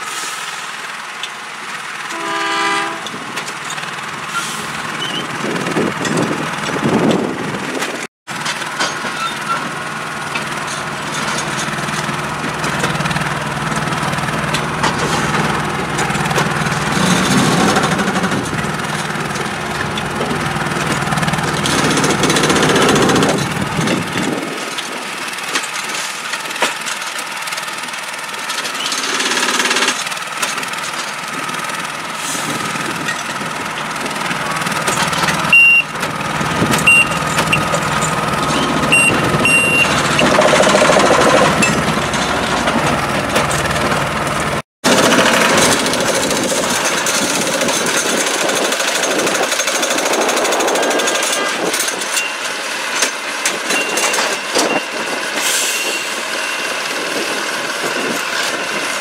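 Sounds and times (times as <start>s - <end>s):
track maintenance machine running: 0.0s - 59.0s
rattling hammering of track tools: 14.0s - 27.3s, 27.9s - 31.2s, 34.7s - 44.2s, 44.9s - 55.1s
high beeps: 35.5s - 35.9s, 36.8s - 37.7s, 38.6s - 40.3s.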